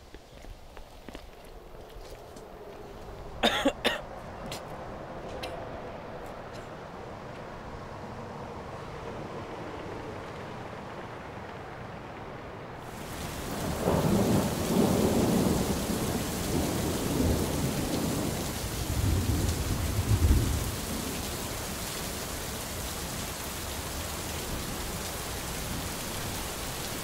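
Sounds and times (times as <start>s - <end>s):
rain hissing: 12.8s - 27.0s
thunder rolling: 13.0s - 21.4s.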